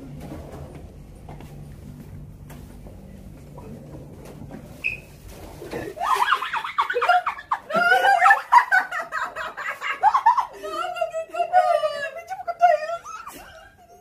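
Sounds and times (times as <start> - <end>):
low room hum: 0.0 - 14.0
women laughing and shrieking: 5.9 - 12.2.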